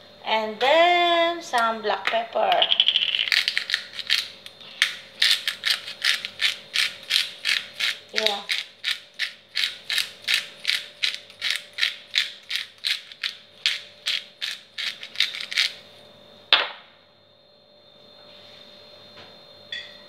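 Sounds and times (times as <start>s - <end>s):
pepper grinder clicking: 1.5s - 15.8s
sharp knock: 16.5s - 16.9s.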